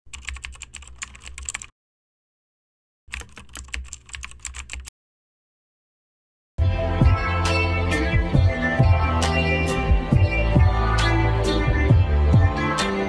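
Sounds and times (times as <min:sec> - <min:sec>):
rapid keyboard key clicks: 0:00.1 - 0:01.7, 0:03.1 - 0:04.9.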